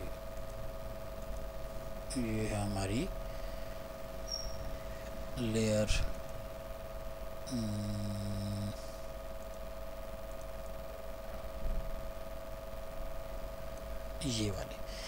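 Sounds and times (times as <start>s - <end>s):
electrical hum: 0.0s - 15.0s
person's drawn-out vocal sound: 7.5s - 8.8s.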